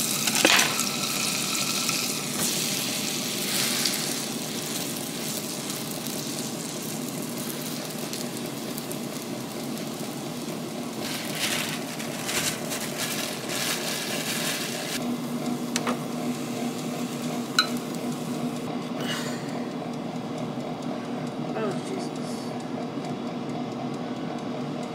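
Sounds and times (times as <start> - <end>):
food sizzling in a frying pan: 0.0 - 15.0, 15.6 - 18.6.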